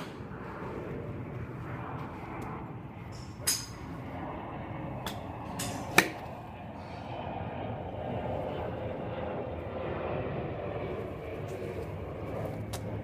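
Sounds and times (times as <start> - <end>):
outdoor background: 0.0 - 13.0
golf club striking ball: 3.1 - 4.0, 5.0 - 6.3.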